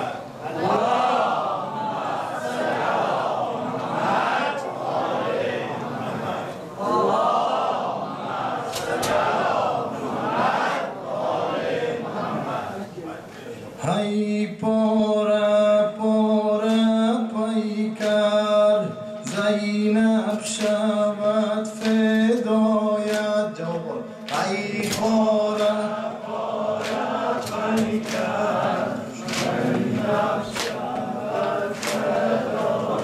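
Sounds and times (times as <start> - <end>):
chorus of men chanting: 0.0 - 12.8, 13.8 - 33.0
man chanting a lament: 13.7 - 29.2
sharp rhythmic beats: 24.2 - 33.0.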